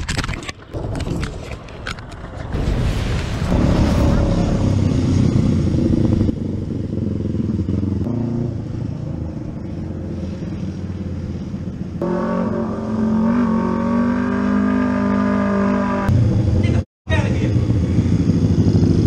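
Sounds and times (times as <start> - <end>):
nearer motorcycle engine: 3.6 - 19.0
motorcycle engines running: 4.6 - 13.4, 16.0 - 19.0.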